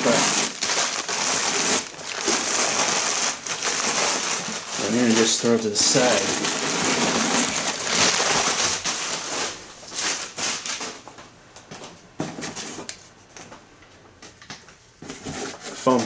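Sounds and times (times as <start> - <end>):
newspaper crinkling and rustling: 0.0 - 11.2.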